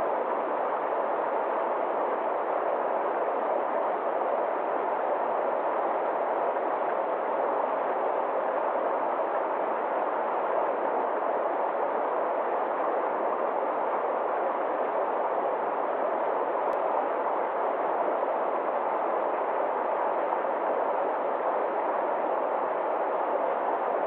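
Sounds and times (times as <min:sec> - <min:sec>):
stream rushing over rocks: 0:00.0 - 0:24.0.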